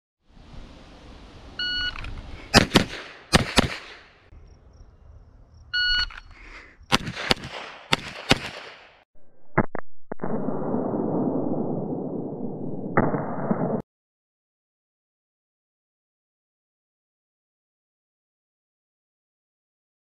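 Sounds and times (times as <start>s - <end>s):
shot timer beep: 1.6s - 2.0s, 5.8s - 6.2s
pistol shots: 2.5s - 4.2s, 6.9s - 9.0s.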